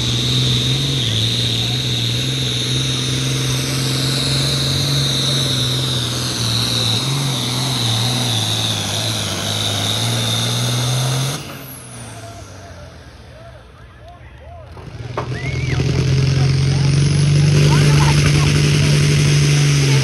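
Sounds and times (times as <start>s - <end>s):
diesel engine drone: 0.0s - 20.0s.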